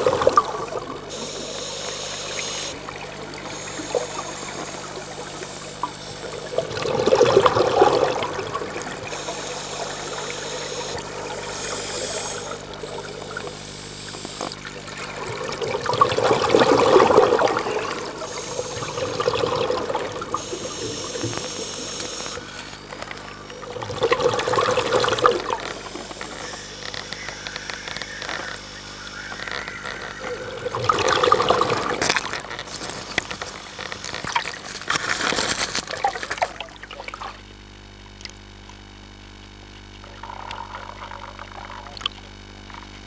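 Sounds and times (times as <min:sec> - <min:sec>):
faint steady hum: 0:00.0 - 0:43.0.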